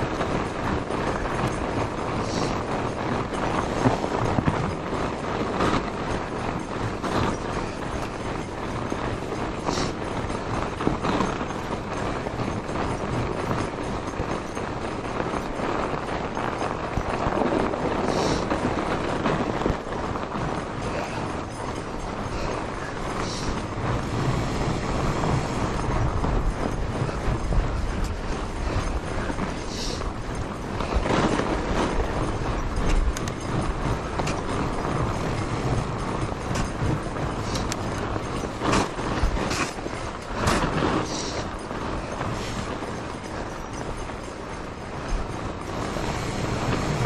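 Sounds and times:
bike tyres crunching snow: 0.1s - 47.0s.

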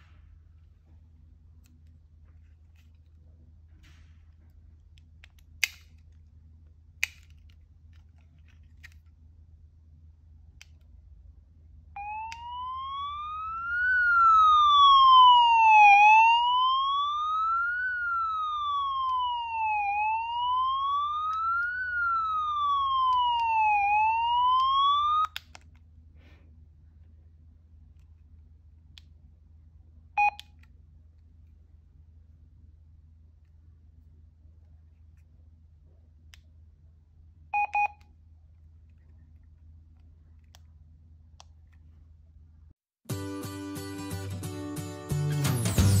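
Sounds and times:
walkie-talkie siren alarm: 12.0s - 25.4s.

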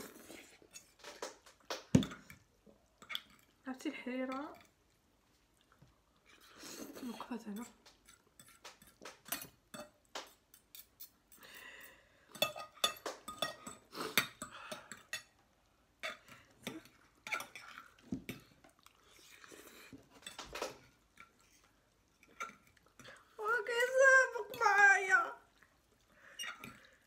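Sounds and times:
cutlery clinking against dishes: 7.2s - 15.4s, 16.0s - 18.6s.

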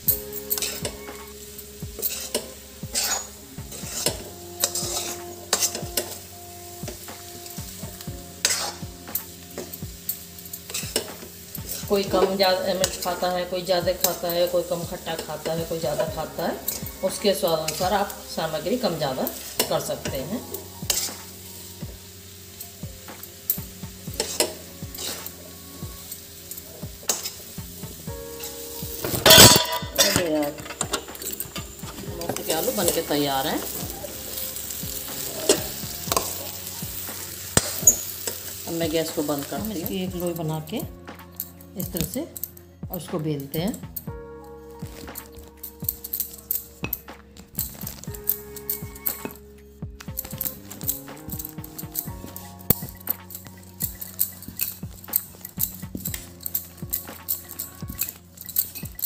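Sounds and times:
steady sizzle: 0.0s - 59.0s
spatula scraping a pan: 0.1s - 42.6s.

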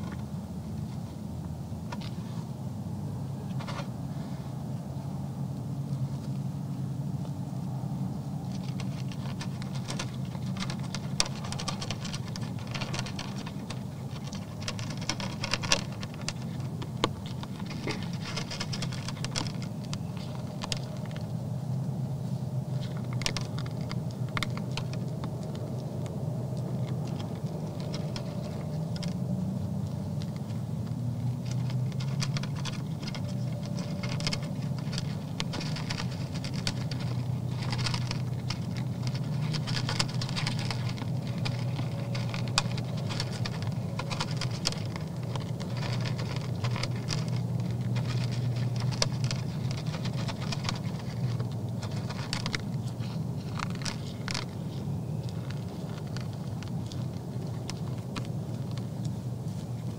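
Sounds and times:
deer chewing feed: 0.0s - 59.9s
steady low hum: 0.0s - 59.9s.

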